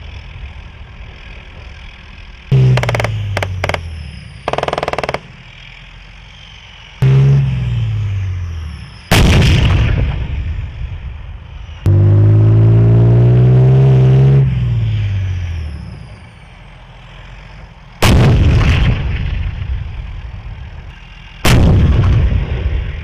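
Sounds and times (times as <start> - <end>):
loud engine drone: 0.0 - 23.0
tank gun shots with rumble: 9.1 - 10.5, 18.0 - 19.7, 21.4 - 23.0.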